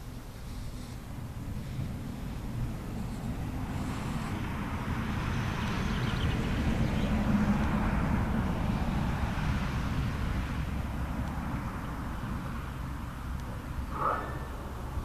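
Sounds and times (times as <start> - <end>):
wind turbine blades whooshing: 1.0 - 15.0
steady low rumble: 10.2 - 15.0.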